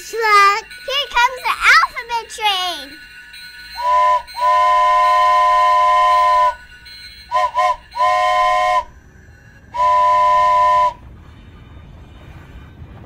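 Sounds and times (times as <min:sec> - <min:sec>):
steam train whistle blasts: 0:03.8 - 0:06.6, 0:07.3 - 0:09.0, 0:09.7 - 0:11.0.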